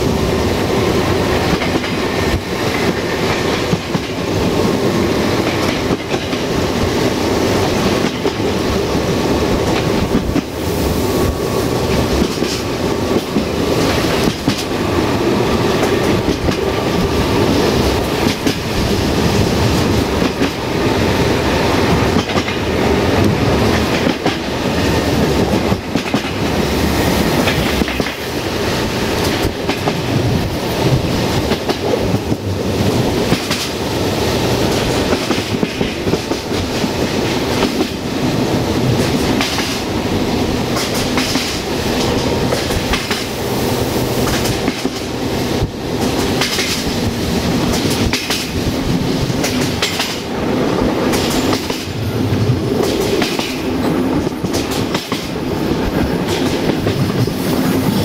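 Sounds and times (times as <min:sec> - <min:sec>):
train rumbling: 0:00.0 - 0:58.0
wheels clicking over rail joints: 0:46.0 - 0:48.7.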